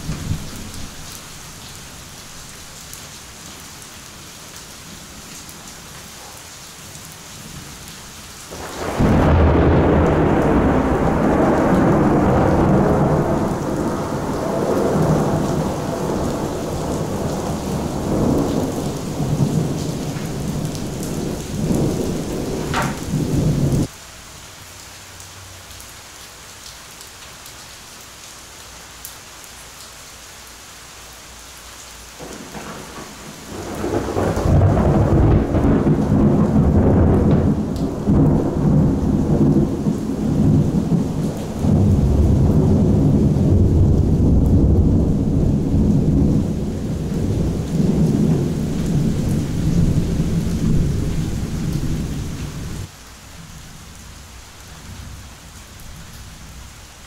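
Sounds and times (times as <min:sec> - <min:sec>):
rain hissing: 0:00.0 - 0:57.0
thunder rumbling: 0:08.5 - 0:23.9, 0:32.2 - 0:52.9.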